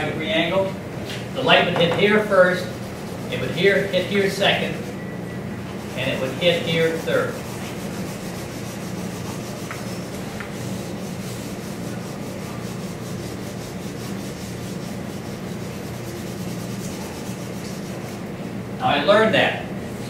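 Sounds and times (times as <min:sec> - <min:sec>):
steady low hum: 0:00.0 - 0:20.0
drawing tool scratching paper: 0:02.5 - 0:05.0, 0:05.8 - 0:18.2.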